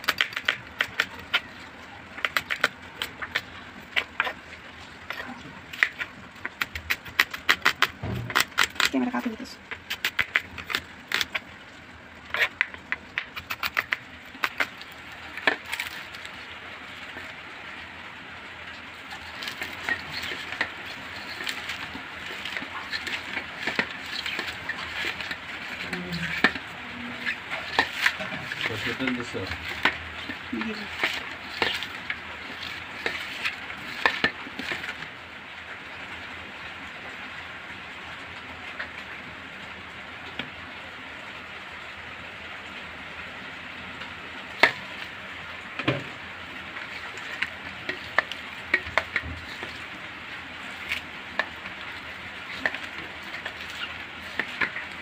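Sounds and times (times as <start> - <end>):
fingers rubbing onions on steel: 13.3 - 15.0.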